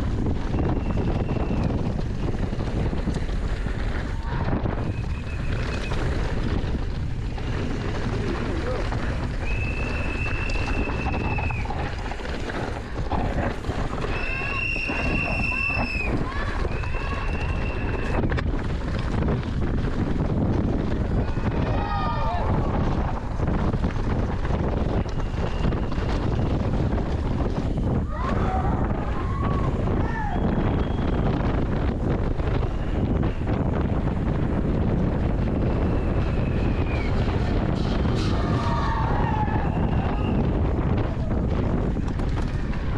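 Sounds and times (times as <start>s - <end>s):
steady low rumble: 0.0s - 42.9s
wind buffeting microphone: 0.0s - 42.9s
high whistle-like tone: 9.4s - 11.6s, 14.1s - 16.1s.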